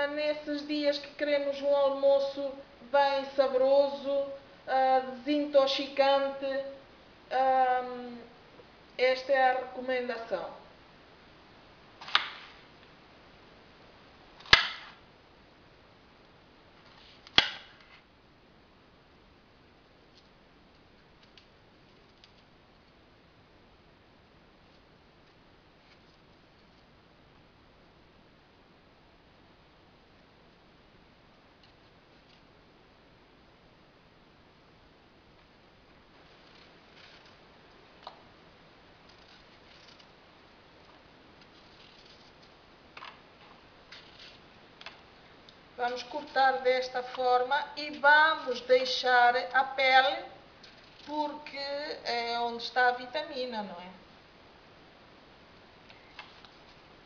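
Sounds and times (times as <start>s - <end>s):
knife slicing apple: 12.0s - 12.6s, 14.4s - 15.0s.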